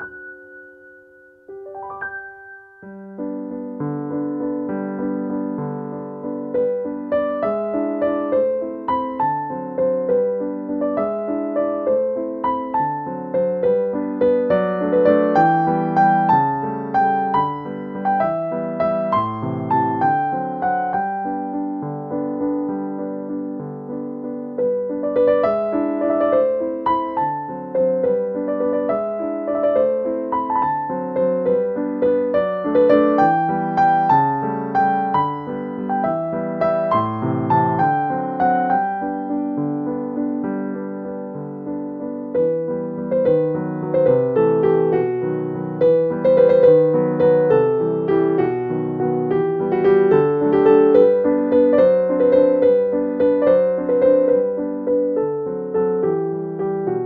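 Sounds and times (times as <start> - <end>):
gentle piano music: 0.0 - 57.0.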